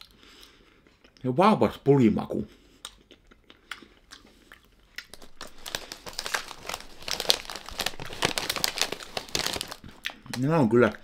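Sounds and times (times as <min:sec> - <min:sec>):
snack bag crinkling: 0:03.8 - 0:11.0.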